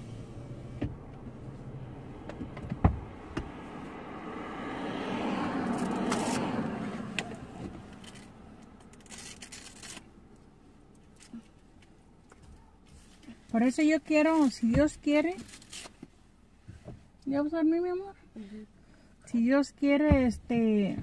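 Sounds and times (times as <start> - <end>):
passing vehicle: 0.0 - 15.9
car noise: 0.0 - 21.0.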